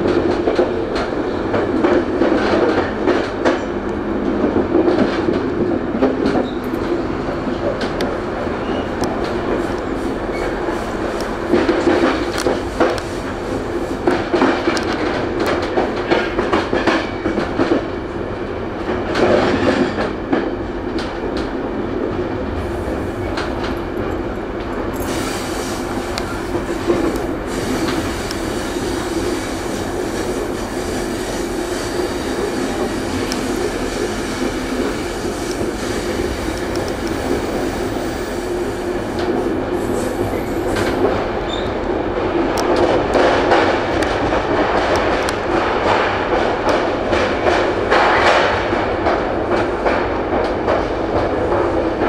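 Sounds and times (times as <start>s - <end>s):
train running rumble: 0.0s - 52.0s
train wheels clicking over rail joints: 4.4s - 17.9s, 22.6s - 41.7s.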